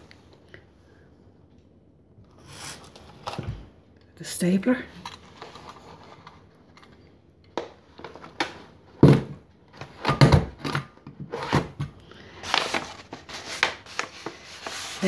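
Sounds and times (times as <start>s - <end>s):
paper handling: 12.4s - 15.0s.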